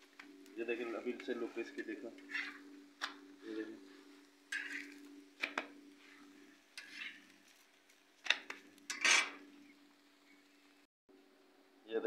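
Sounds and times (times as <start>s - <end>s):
steady low hum: 0.0s - 7.6s
parathas frying: 0.0s - 10.9s
metal utensil scraping griddle: 0.6s - 9.5s.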